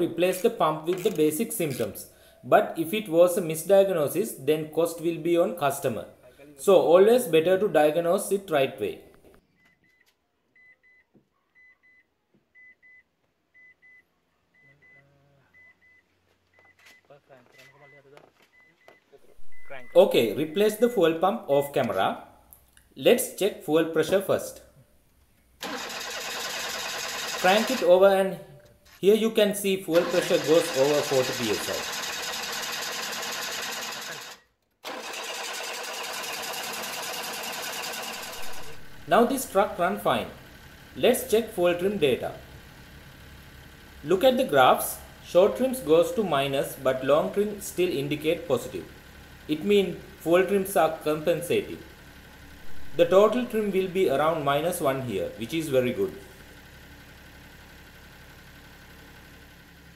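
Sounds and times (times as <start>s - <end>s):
faint electronic double beeps: 14.6s - 20.9s
engine running steadily: 25.6s - 28.0s, 29.9s - 34.3s, 34.9s - 59.9s.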